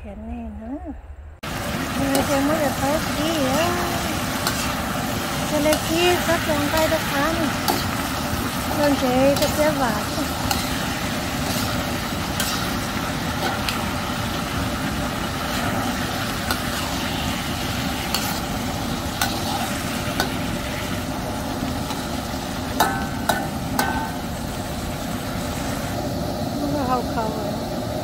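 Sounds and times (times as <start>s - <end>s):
food sizzling in a wok: 1.4s - 28.0s
metal spatula scraping wok: 2.0s - 24.4s.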